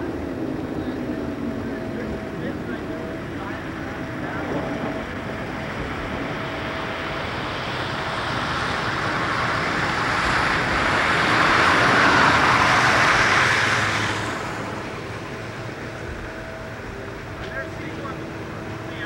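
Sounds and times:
vehicle passing close by: 5.9 - 15.9.

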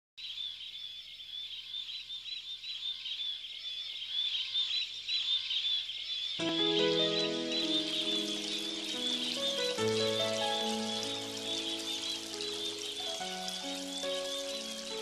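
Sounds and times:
birds chirping in chorus: 0.2 - 15.0
music with held notes: 6.4 - 15.0.

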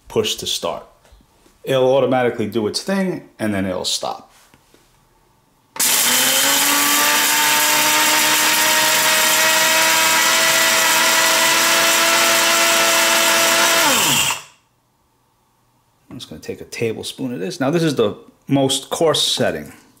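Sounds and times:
coffee grinder motor: 5.8 - 14.5.

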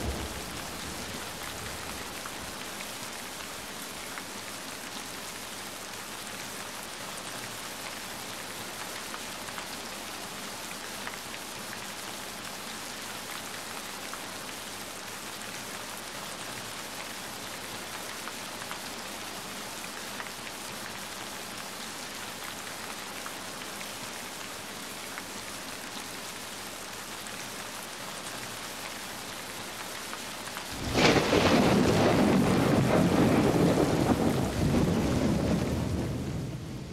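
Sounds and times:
thunder clap rumbling: 0.0 - 2.4, 30.7 - 36.9
steady rain falling: 0.0 - 36.9.

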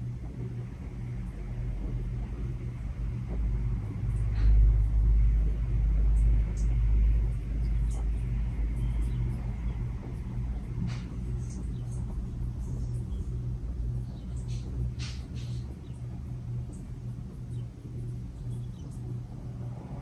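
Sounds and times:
air rumble buffeting microphone: 0.0 - 20.0
ceiling fan motor hum: 0.0 - 20.0.

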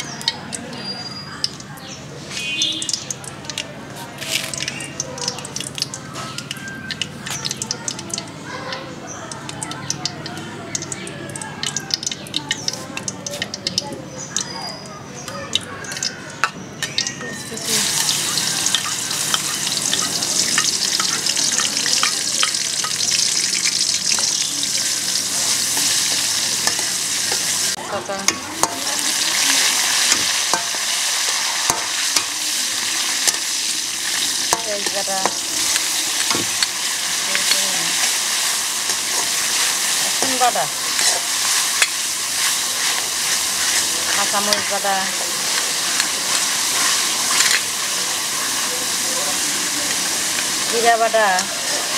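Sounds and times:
onion sizzling in hot oil: 0.0 - 51.9
metal spatula scraping pan: 37.3 - 44.8, 45.4 - 47.8.

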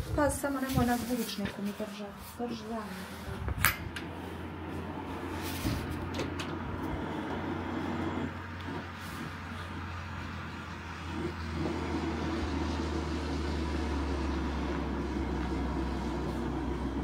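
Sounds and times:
car engine drone: 3.4 - 17.0.

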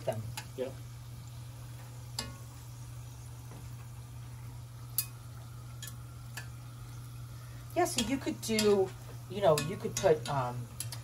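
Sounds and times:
food sizzling in hot oil: 0.0 - 11.0
steady low hum: 0.0 - 11.0
utensil tapping pot: 5.8 - 6.6, 7.8 - 11.0.

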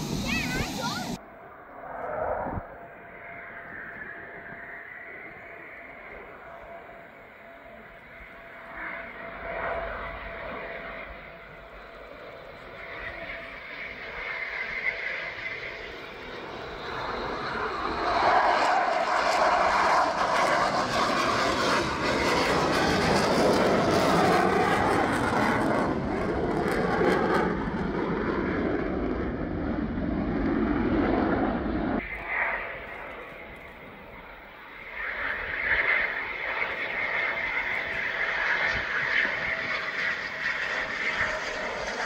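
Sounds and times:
aircraft flying past: 0.0 - 42.0.

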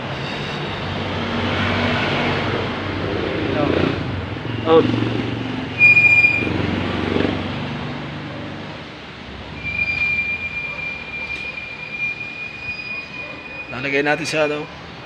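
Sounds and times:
high-pitched squeal: 0.0 - 2.2, 5.7 - 6.8, 9.4 - 15.0.

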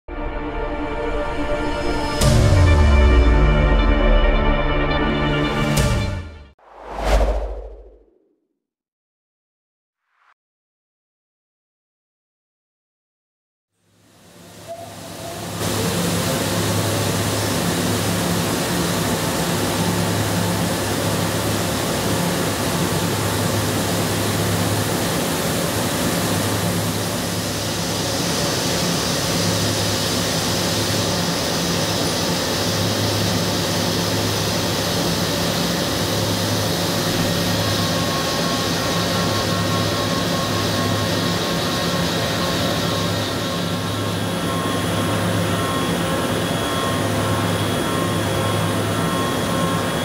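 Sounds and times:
low drone: 0.1 - 8.3, 14.4 - 50.0
milling machine cutting steel hiss: 14.4 - 50.0.

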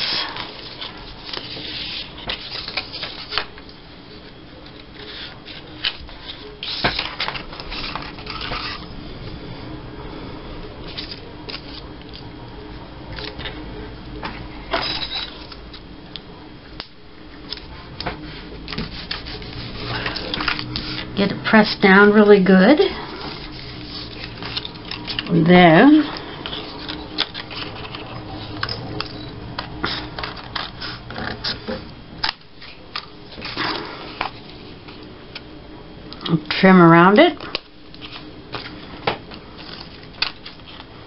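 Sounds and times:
paper rustling: 0.0 - 3.7, 4.6 - 8.9, 17.5 - 21.1, 23.0 - 25.3, 38.0 - 40.9.

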